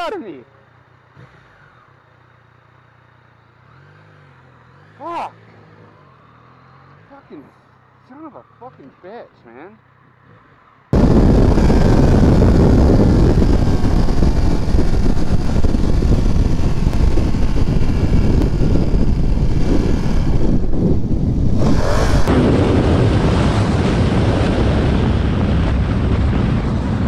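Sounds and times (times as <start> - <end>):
motorcycle engine: 0.0 - 8.8, 9.8 - 27.0
wind rushing on microphone: 11.0 - 27.0.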